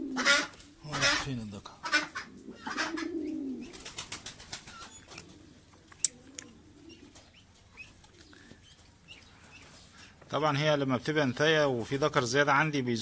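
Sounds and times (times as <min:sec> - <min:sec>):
pigeons cooing: 0:00.0 - 0:10.2.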